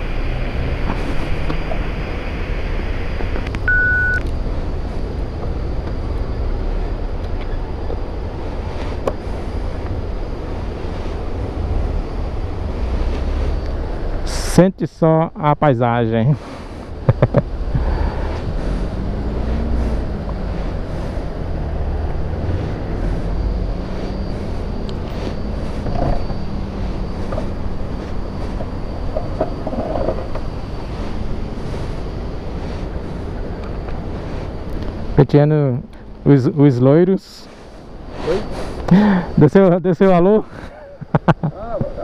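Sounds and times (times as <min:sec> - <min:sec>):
low rumble: 0:00.0 - 0:36.3
electronic beep: 0:01.4 - 0:04.3, 0:22.5 - 0:32.7.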